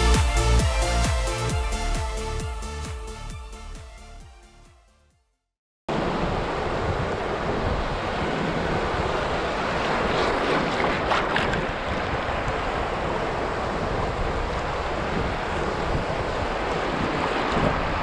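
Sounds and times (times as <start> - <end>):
small waves washing ashore: 5.9 - 18.0
wind buffeting microphone: 6.0 - 18.0.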